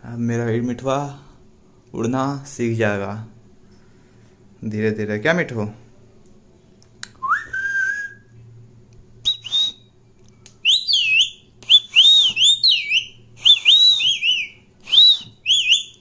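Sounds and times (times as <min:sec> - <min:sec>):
parrot whistling: 0:07.2 - 0:08.2, 0:09.2 - 0:09.9, 0:10.6 - 0:16.0.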